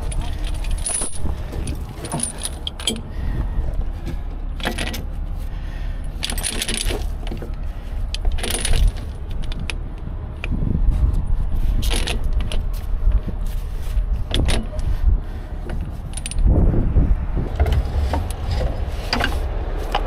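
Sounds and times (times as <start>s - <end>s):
heavy chain clinking and rattling: 0.0s - 3.1s, 4.6s - 5.1s, 6.0s - 9.7s, 11.8s - 12.7s, 15.6s - 16.5s
steady low rumble: 0.0s - 20.0s.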